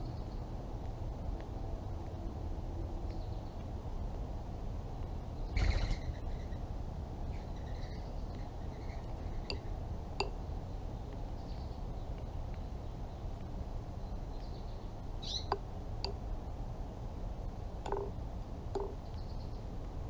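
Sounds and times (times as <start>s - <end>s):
low outdoor rumble: 0.0s - 20.0s
faint bird chirps: 5.4s - 6.6s, 7.3s - 10.4s, 14.0s - 15.6s.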